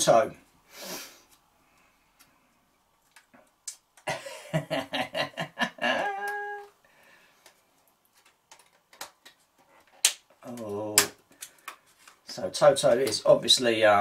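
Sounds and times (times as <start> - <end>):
man laughing: 4.1 - 6.7.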